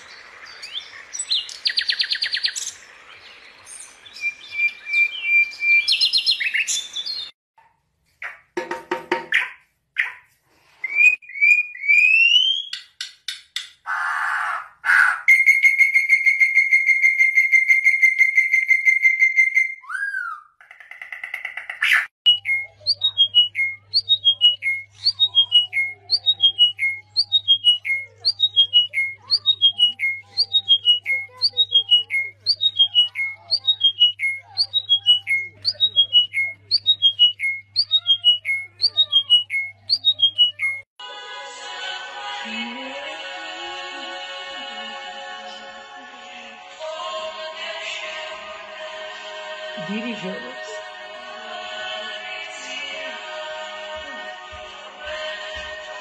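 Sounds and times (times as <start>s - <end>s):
bird whistling: 4.0s - 7.3s, 13.9s - 20.6s, 21.9s - 40.8s.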